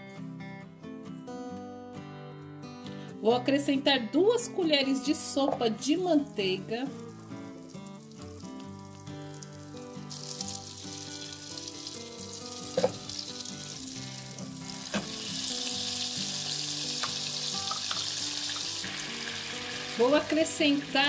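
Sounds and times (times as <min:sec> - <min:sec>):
butter sizzling in oil: 0:05.8 - 0:21.0
metal spoon knocking on pan: 0:12.7 - 0:13.1.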